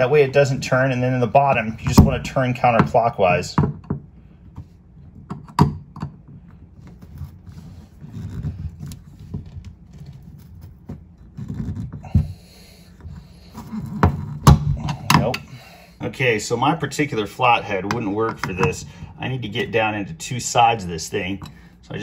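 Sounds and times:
scraping and rustling: 0:06.4 - 0:14.5.

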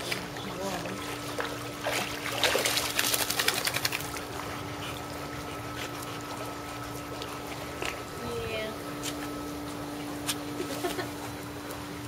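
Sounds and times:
steady low hum: 0:00.0 - 0:12.0
dog splashing out of water: 0:01.8 - 0:04.2.

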